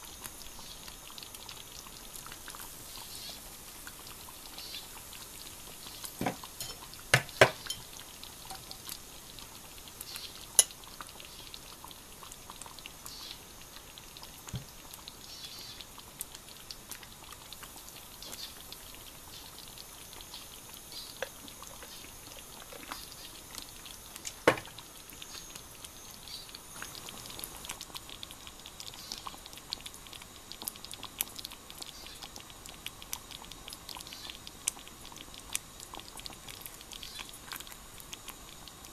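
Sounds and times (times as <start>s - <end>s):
crackling fizz of bubbles: 0.0s - 38.9s
tableware knocks: 6.2s - 7.8s.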